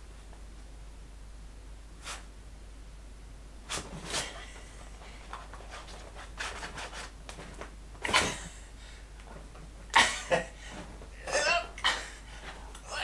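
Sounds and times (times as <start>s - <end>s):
dog rustling and scuffing: 3.7s - 7.7s.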